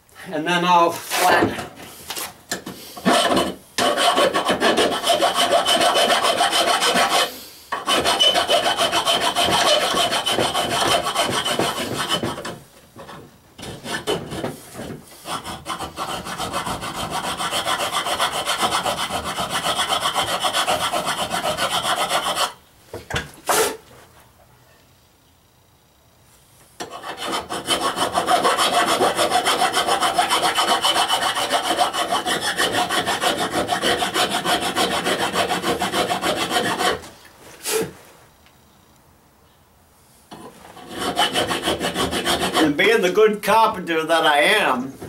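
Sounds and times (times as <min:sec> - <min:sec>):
hand file rasping on metal pipe: 0:03.0 - 0:22.6, 0:26.8 - 0:37.1, 0:40.3 - 0:43.0.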